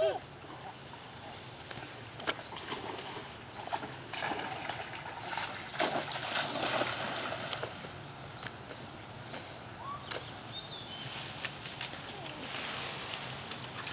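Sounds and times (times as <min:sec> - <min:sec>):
river water splashing: 0:00.0 - 0:08.1, 0:11.0 - 0:13.9.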